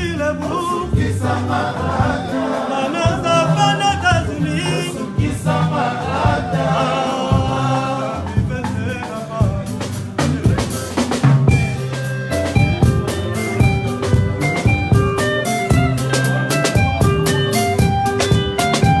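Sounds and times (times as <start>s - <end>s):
voices singing: 0.0s - 11.3s
drum kit: 0.0s - 19.0s
picked guitar notes: 0.0s - 19.0s.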